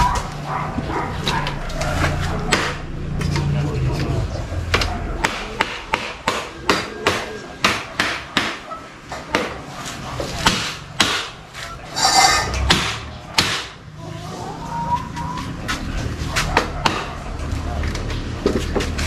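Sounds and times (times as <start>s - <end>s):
glass scraping in frame: 11.6s - 12.7s.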